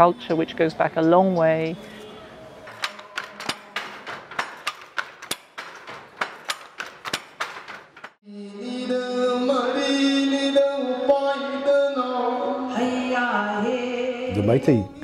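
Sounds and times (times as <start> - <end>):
wooden handloom clacking: 2.7 - 8.2.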